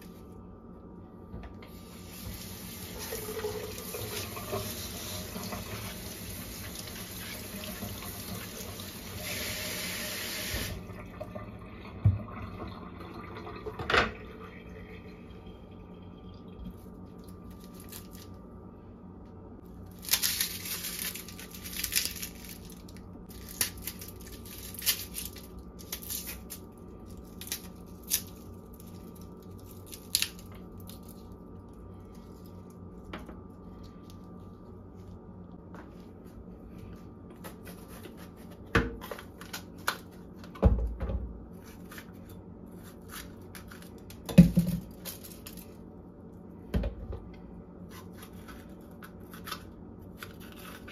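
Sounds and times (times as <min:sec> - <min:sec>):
faint steady hum: 0:00.0 - 0:50.9
garlic skins crackling and tearing: 0:17.4 - 0:18.4, 0:19.8 - 0:33.0, 0:41.6 - 0:45.8, 0:47.9 - 0:50.9.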